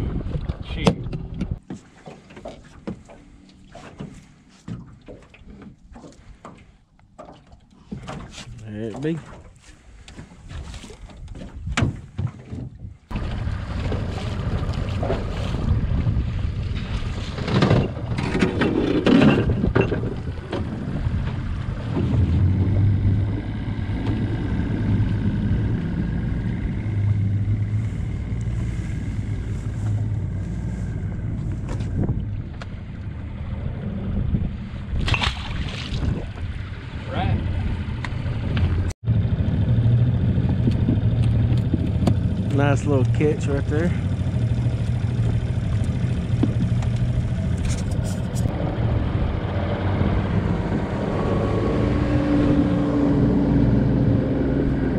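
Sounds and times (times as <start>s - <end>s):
outboard motor running: 0.0s - 54.9s
water splashing: 1.8s - 17.5s, 34.9s - 37.0s, 40.5s - 48.6s.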